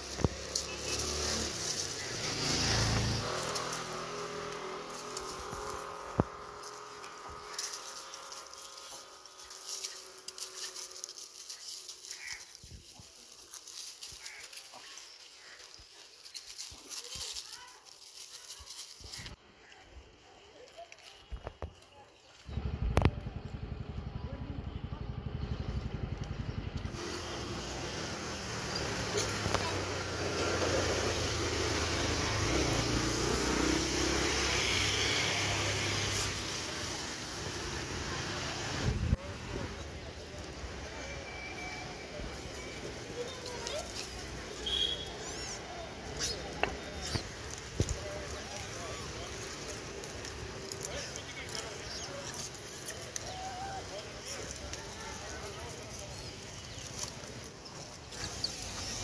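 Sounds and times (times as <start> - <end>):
vehicle engine running: 0.0 - 12.4, 22.4 - 41.0, 42.2 - 59.0
rustling in dry leaf litter: 0.0 - 23.0, 26.8 - 59.0
street traffic noise: 0.0 - 59.0
monkeys calling softly: 42.7 - 59.0.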